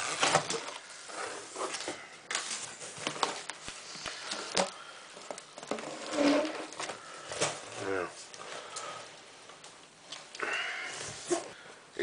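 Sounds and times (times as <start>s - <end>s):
cardboard rustling and scraping: 0.0s - 4.7s, 5.6s - 8.3s.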